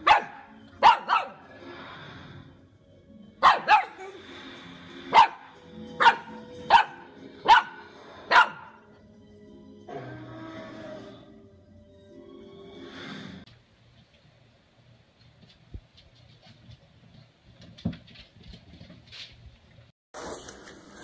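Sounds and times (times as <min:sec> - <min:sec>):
puppy barking: 0:00.0 - 0:01.5, 0:03.4 - 0:04.0, 0:05.1 - 0:08.8.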